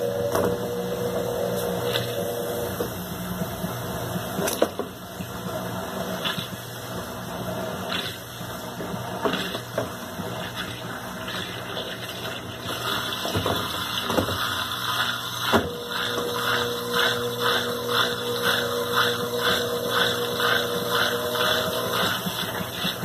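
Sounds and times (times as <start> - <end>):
washing machine pump draining: 0.0 - 23.0
steady hum: 14.8 - 23.0.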